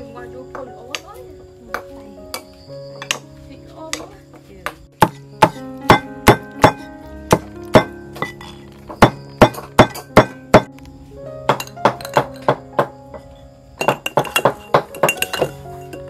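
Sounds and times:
cleaver chopping on cutting board: 5.0 - 7.9.

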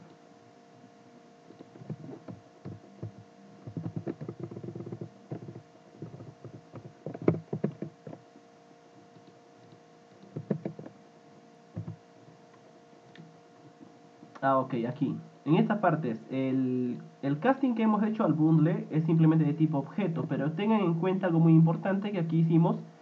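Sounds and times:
faint steady hum: 0.0 - 23.0
computer keyboard typing: 1.8 - 8.2, 9.2 - 10.9.

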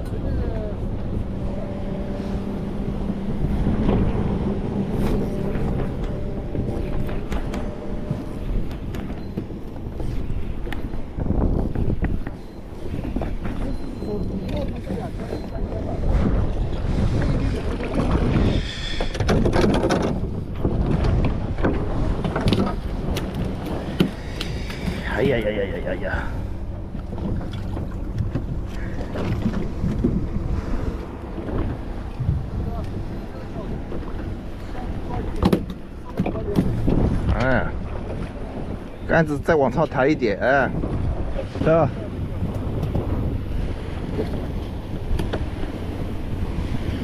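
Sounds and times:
boat engine humming: 0.0 - 47.0
wind buffeting microphone: 0.0 - 47.0.

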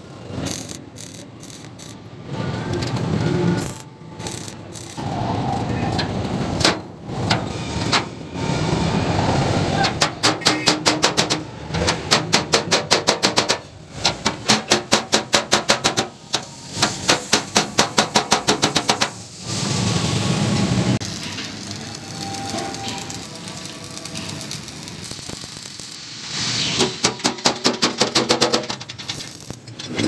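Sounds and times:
hammer striking sheet steel: 9.8 - 19.2, 26.7 - 28.9.

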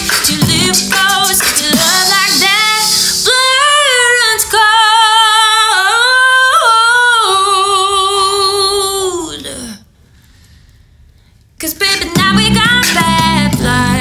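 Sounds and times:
woman singing with vibrato: 0.0 - 9.9, 11.6 - 14.0.

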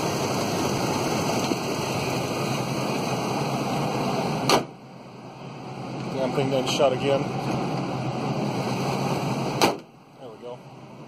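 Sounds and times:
car engine idling: 0.0 - 11.0
car hood slamming: 4.4 - 4.8, 9.6 - 9.9.

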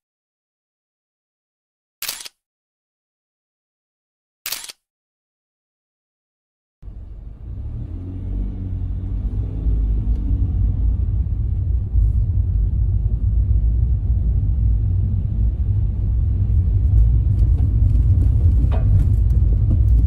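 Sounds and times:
car engine and tyres rumbling: 6.8 - 20.0.

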